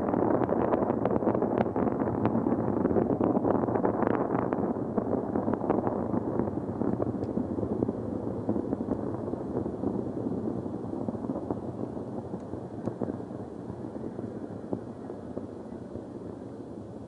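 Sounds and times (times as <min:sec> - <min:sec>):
distant rocket engine rumble: 0:00.0 - 0:17.0.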